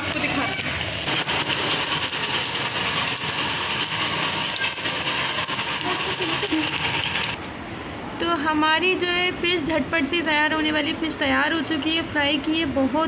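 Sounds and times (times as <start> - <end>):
fish deep-frying in sizzling oil: 0.0 - 7.4.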